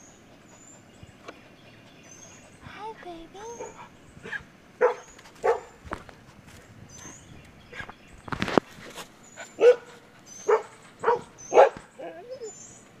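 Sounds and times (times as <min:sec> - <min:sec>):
puppy barking: 0:03.5 - 0:05.8, 0:09.6 - 0:12.5
puppy whining: 0:09.3 - 0:13.0.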